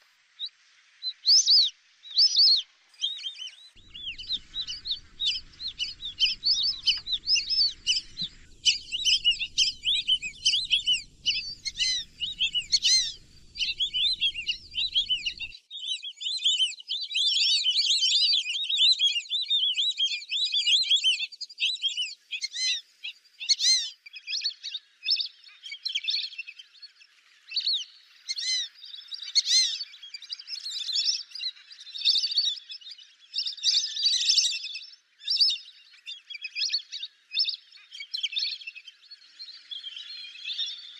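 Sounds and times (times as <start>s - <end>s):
ducks whistling calls: 3.3s - 15.5s.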